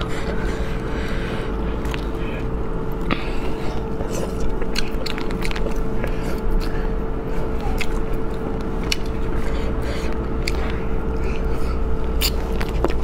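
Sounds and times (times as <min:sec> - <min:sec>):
chewing meat off bones: 0:00.0 - 0:13.0
steady low hum: 0:00.0 - 0:13.0
bone clicks and crunches: 0:04.0 - 0:06.8, 0:07.6 - 0:09.4, 0:10.4 - 0:11.3, 0:12.1 - 0:13.0.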